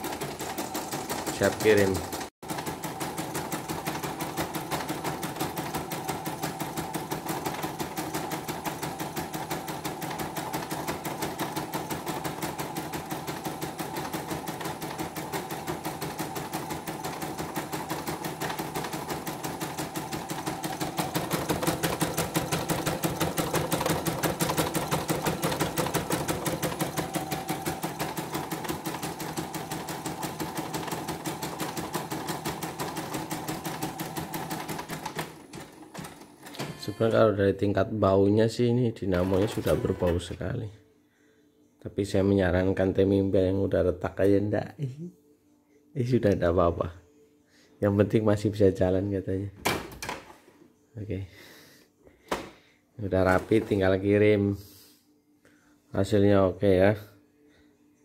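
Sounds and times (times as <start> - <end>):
embroidery machine rattling: 0.0 - 36.3.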